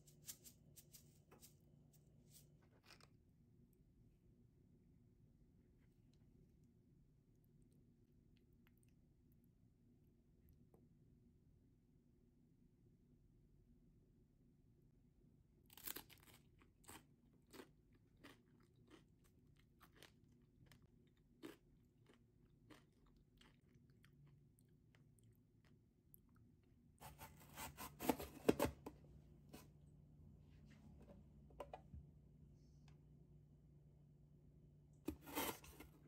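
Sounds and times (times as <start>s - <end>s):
crackers crunching while chewed: 15.6s - 27.2s.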